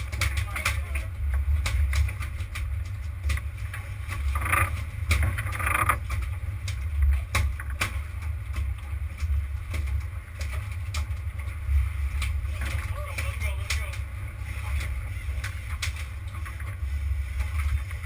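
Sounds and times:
boat engine rumble: 0.0s - 18.0s
knocks and clicks on board: 4.3s - 8.7s.

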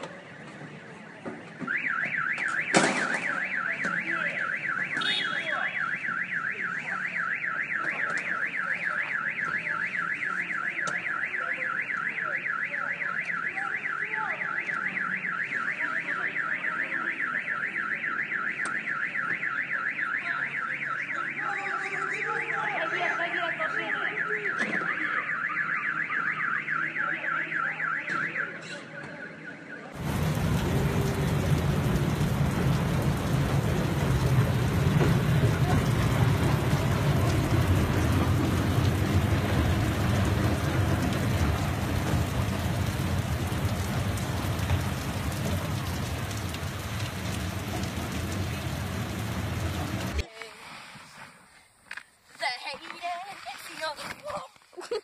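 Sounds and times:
car alarm siren warbling: 1.7s - 47.9s.

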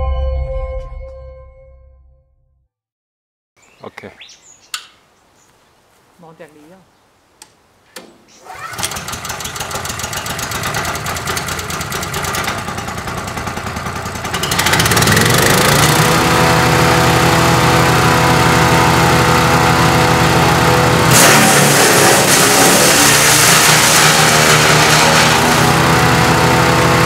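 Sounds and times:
engine starter clicks: 8.0s - 12.8s
small petrol engine running: 8.4s - 27.0s.

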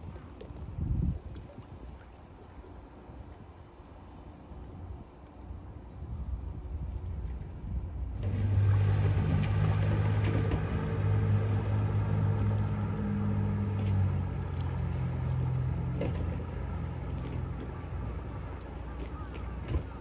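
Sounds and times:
boat motor running: 8.0s - 20.0s.

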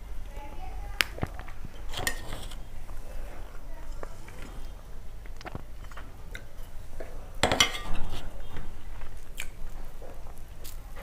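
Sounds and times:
metal bowl and plate clattering: 1.8s - 2.7s, 5.5s - 8.8s.

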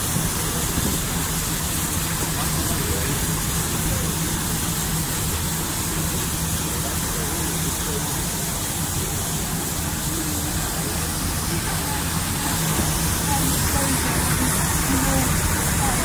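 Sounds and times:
train rushing noise: 0.0s - 16.0s.

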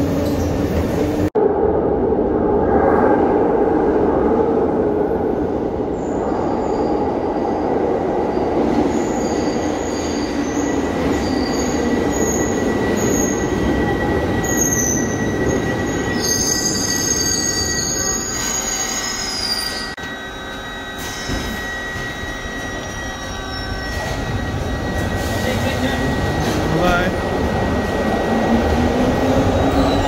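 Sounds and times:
high wheel squeals: 8.9s - 30.0s.

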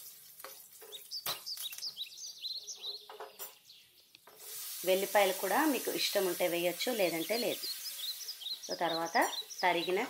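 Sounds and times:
tomatoes hissing in hot oil: 0.0s - 1.2s, 4.3s - 10.0s
bird chirping: 0.1s - 4.4s, 6.7s - 10.0s.

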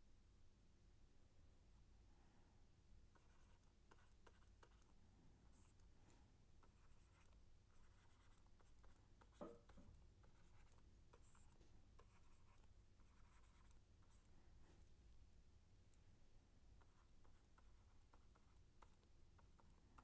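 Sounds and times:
stylus scratching on pen tablet: 3.1s - 5.9s, 6.6s - 14.4s, 16.7s - 20.0s.

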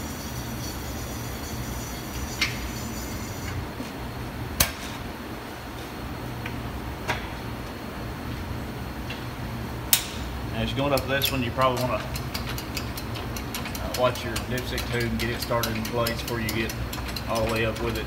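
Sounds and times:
steady low hum: 0.0s - 18.0s
sharp clicks and knocks: 10.9s - 18.0s.

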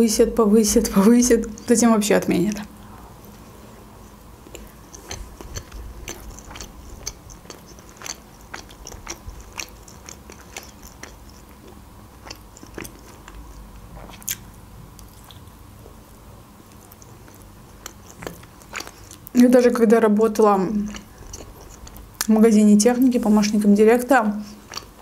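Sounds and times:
person chewing pizza: 2.5s - 15.7s, 16.6s - 19.4s, 20.4s - 22.4s, 24.4s - 25.0s
wet mouth clicks and crunches: 4.4s - 15.5s, 16.7s - 19.4s, 20.8s - 22.3s, 24.5s - 25.0s.

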